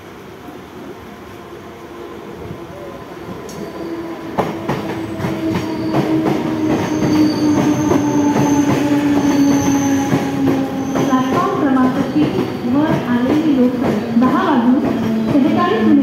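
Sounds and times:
electric train traction whine: 3.3s - 16.0s
high wheel squeal: 5.0s - 13.0s.

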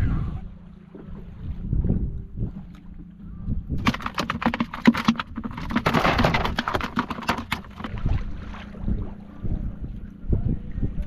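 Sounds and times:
fish slapping plastic basket: 3.8s - 8.0s.

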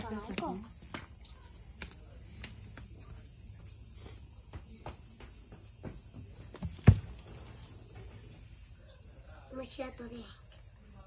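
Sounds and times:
cicadas droning: 0.0s - 11.0s
dull thump: 5.8s - 7.4s.

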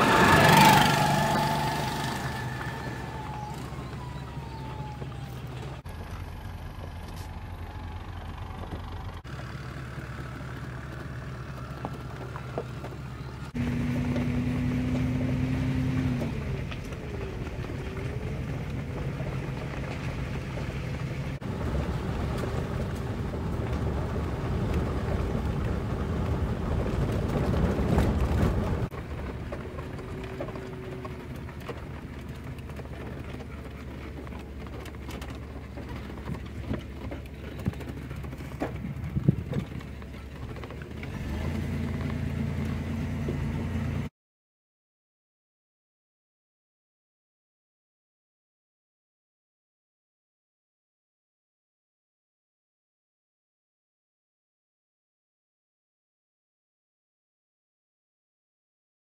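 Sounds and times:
road noise on gravel: 0.0s - 44.1s
vehicle engine rumble: 0.0s - 44.1s.

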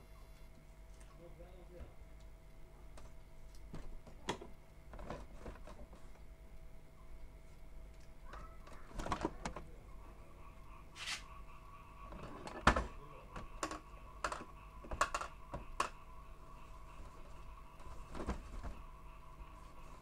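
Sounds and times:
plastic parts clicking and knocking: 3.0s - 6.0s, 8.3s - 9.7s, 12.1s - 16.0s
brief rub: 11.0s - 11.3s.

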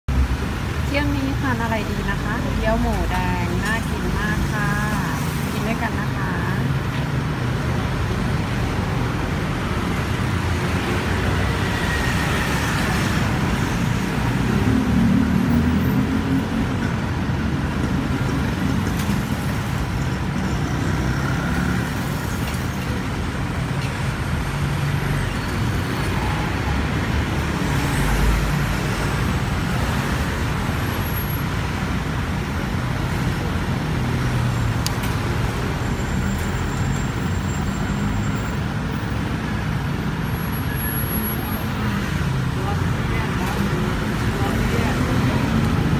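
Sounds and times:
road traffic rumble: 0.0s - 45.9s
vehicle engines passing: 0.1s - 45.9s.

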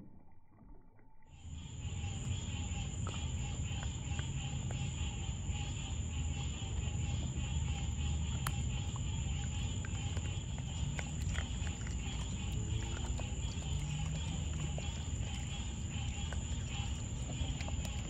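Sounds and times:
night insects droning: 1.3s - 18.0s
low steady rumble: 1.4s - 18.0s
small water splashes: 8.2s - 18.0s.

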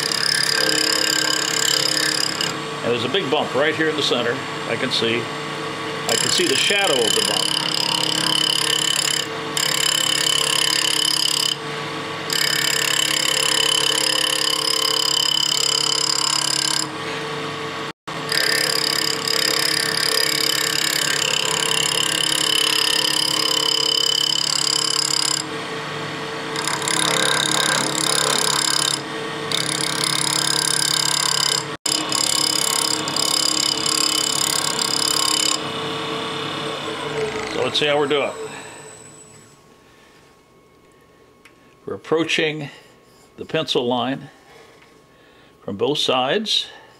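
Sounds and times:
gouge cutting wood: 0.0s - 2.5s, 6.1s - 11.6s, 18.3s - 25.4s, 26.6s - 35.6s
wood lathe humming: 0.0s - 2.9s, 6.0s - 16.9s, 18.1s - 39.3s.

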